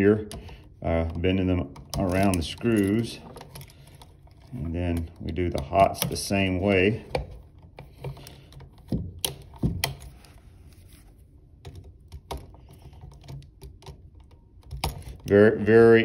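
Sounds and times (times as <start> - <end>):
wire and pliers clicking on plastic: 0.2 - 6.5, 7.1 - 10.2.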